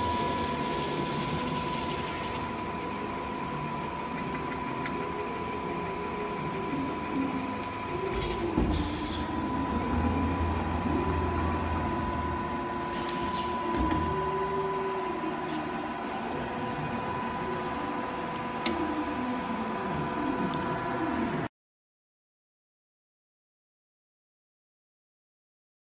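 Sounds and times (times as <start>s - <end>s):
machine hum with whine: 0.0s - 21.5s
low tone rising and falling: 6.7s - 18.1s.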